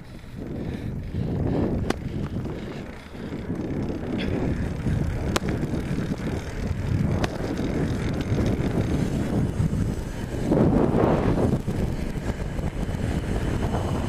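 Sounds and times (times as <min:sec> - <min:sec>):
wind buffeting microphone: 0:00.0 - 0:14.0
sharp ticks: 0:01.8 - 0:10.1.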